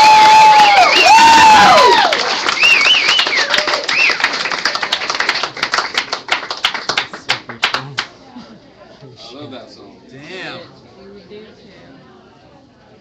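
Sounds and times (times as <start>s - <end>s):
audience applauding: 0.0s - 8.1s
whoops and whistles: 0.5s - 1.7s, 2.6s - 4.2s.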